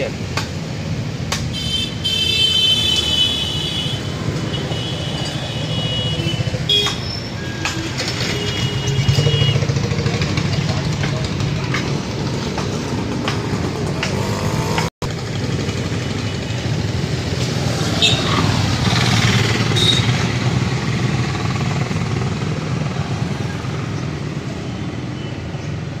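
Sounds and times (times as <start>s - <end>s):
moped engine idling: 9.1s - 14.4s.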